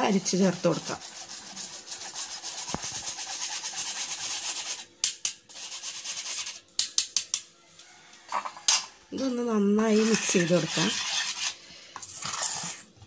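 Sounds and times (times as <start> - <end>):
whisk scraping through sieve: 0.2 - 4.9, 5.5 - 6.7, 9.8 - 13.0.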